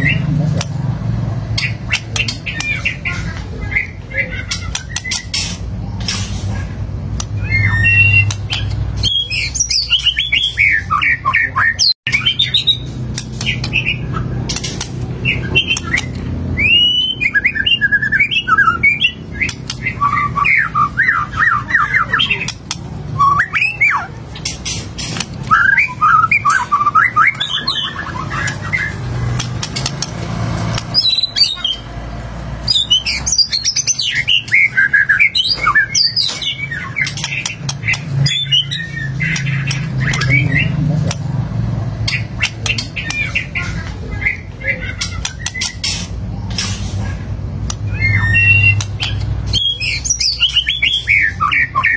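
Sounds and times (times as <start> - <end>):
bird singing whistles and chatters: 7.2 - 30.0, 47.7 - 51.9.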